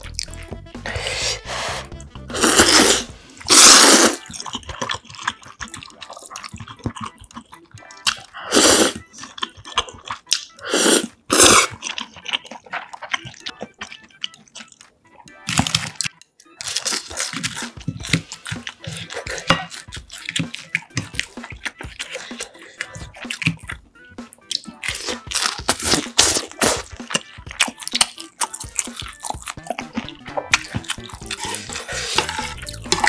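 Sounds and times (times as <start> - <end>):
person slurping noodles: 0.8 - 7.0, 8.1 - 9.4, 10.6 - 12.6, 17.2 - 19.8, 20.6 - 23.5, 24.9 - 27.0, 30.6 - 33.0
chewing with wet mouth clicks: 4.2 - 8.3, 9.0 - 10.6, 11.7 - 14.9, 24.4 - 25.6, 26.6 - 33.0.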